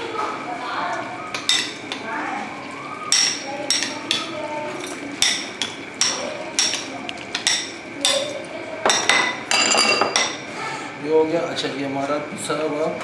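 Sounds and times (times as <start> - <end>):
metal spoon clinking glass bowl: 3.1 - 4.2, 4.8 - 10.4.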